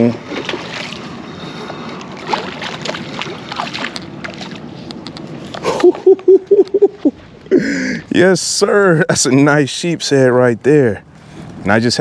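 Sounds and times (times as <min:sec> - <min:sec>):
water splashing and sloshing: 0:00.0 - 0:05.9.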